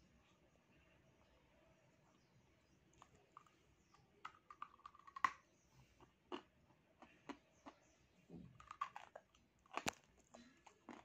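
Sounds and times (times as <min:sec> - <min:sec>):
crunchy chewing clicks: 0:02.9 - 0:05.4, 0:06.0 - 0:07.9, 0:08.5 - 0:11.0.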